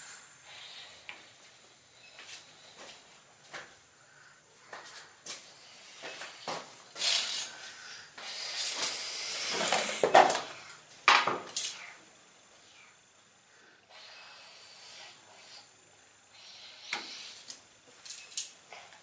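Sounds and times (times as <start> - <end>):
hissing: 5.6 - 10.3.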